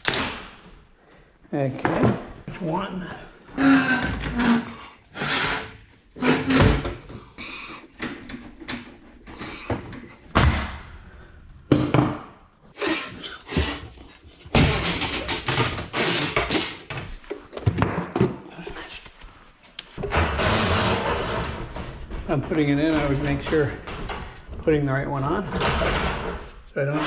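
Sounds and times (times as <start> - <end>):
metal knocks and clanks: 20.0 - 26.5
metal rattling and scraping: 20.0 - 27.0.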